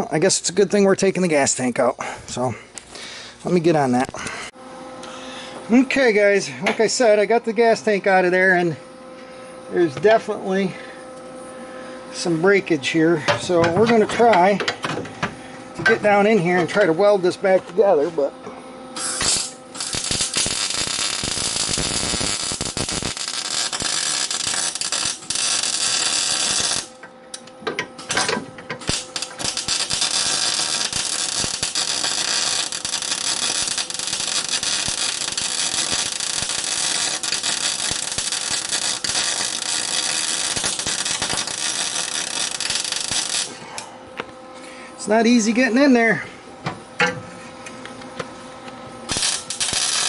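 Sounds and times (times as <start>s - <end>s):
arc welder crackling: 0.0s - 8.8s, 12.1s - 44.4s, 46.8s - 50.0s.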